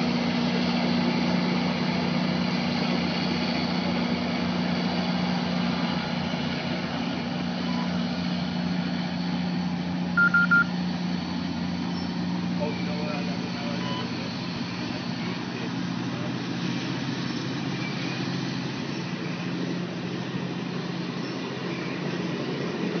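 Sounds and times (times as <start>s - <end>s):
diesel locomotive drone: 0.0s - 23.0s
short high beeps: 10.2s - 10.7s.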